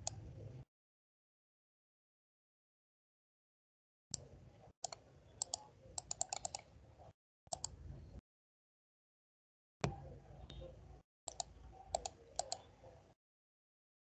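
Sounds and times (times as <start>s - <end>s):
computer mouse clicks: 0.0s - 0.2s, 4.2s - 6.7s, 7.5s - 7.8s, 11.3s - 12.7s
faint low hum: 0.0s - 0.7s, 4.2s - 8.2s.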